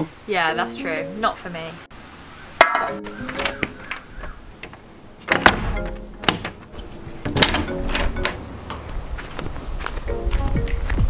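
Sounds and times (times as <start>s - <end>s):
pitched musical notes: 0.3s - 2.0s, 2.6s - 4.0s, 5.2s - 9.4s, 10.0s - 11.0s.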